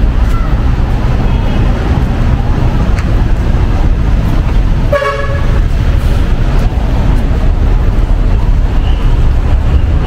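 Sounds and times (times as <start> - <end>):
street traffic rumble: 0.0 - 10.0
vehicle horn toot: 4.9 - 5.6.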